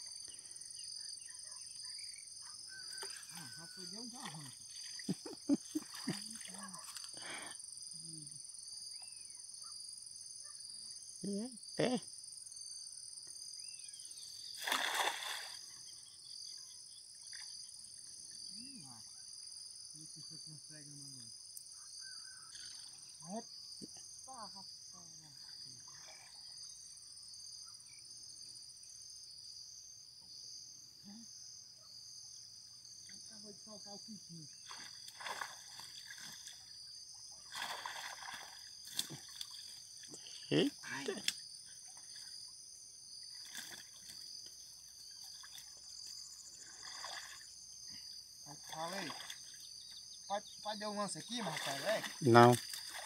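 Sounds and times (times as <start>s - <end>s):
crickets chirring: 0.0s - 53.0s
high-pitched insect chorus: 0.0s - 53.0s
cast net splashing into water: 14.5s - 15.6s, 34.6s - 36.6s, 37.4s - 39.8s, 43.3s - 44.2s, 46.7s - 47.4s, 48.6s - 49.5s, 51.3s - 53.0s.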